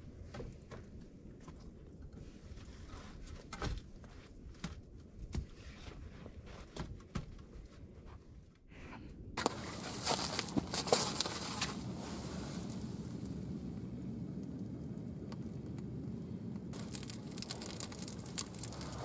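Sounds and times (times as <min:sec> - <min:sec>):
kindling crackling in a stove: 0:09.4 - 0:19.0
faint knocks of logs shifting: 0:16.6 - 0:19.0.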